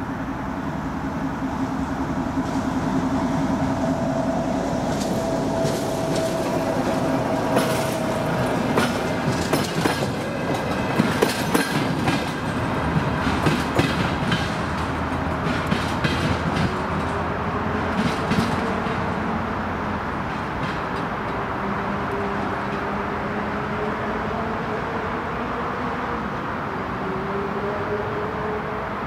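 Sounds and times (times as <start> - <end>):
diesel rail car running: 0.0 - 29.0
wheels clacking over rail joints: 0.7 - 23.2.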